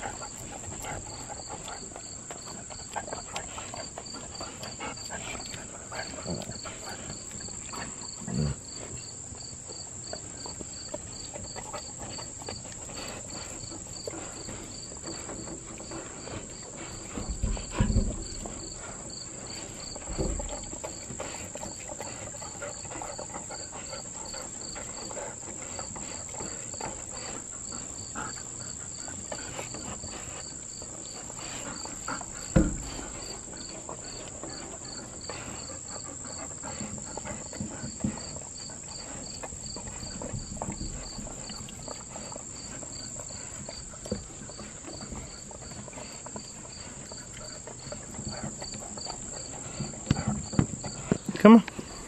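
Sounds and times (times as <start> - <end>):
dogs licking and smacking: 0.0 - 52.0
loud thump: 32.5 - 33.1.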